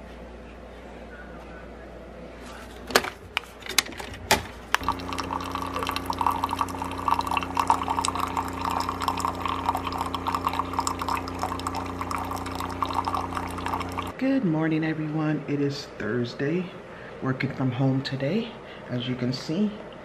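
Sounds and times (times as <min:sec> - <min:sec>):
coffee machine humming: 0:02.9 - 0:14.2
coffee splashing into a mug: 0:04.8 - 0:14.2.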